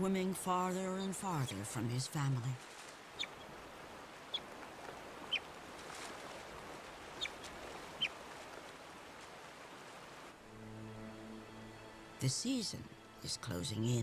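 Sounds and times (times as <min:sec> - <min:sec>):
river water rushing: 0:02.6 - 0:14.0
otter chirping: 0:03.1 - 0:03.5, 0:04.3 - 0:04.5, 0:05.2 - 0:05.5, 0:07.2 - 0:08.2.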